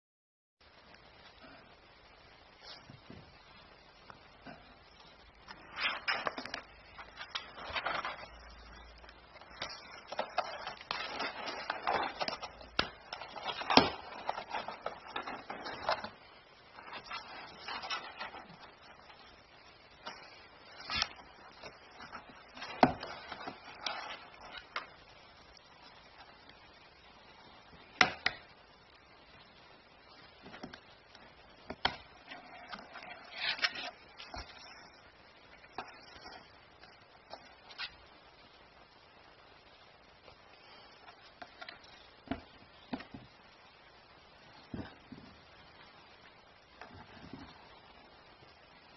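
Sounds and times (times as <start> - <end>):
soft scraping and rustling: 30.4 - 38.1.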